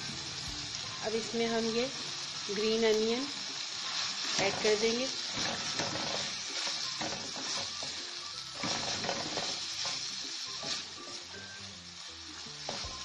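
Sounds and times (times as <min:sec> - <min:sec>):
meat sizzling in a pot: 0:00.0 - 0:13.0
wooden spoon scraping: 0:03.8 - 0:08.0, 0:08.6 - 0:10.0.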